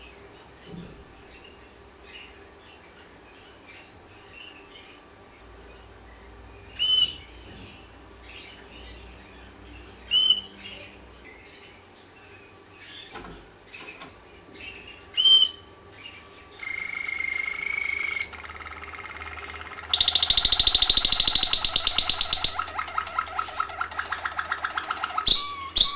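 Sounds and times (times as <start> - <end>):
canary chirps: 0.0 - 25.9
canary song with fast trill: 1.2 - 25.9
canary calls: 6.8 - 7.4, 8.3 - 11.8, 14.6 - 25.9.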